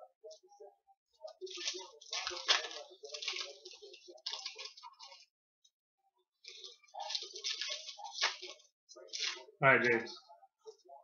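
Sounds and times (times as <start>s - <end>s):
foil wrappers tearing and crinkling: 1.4s - 5.2s, 6.5s - 9.5s.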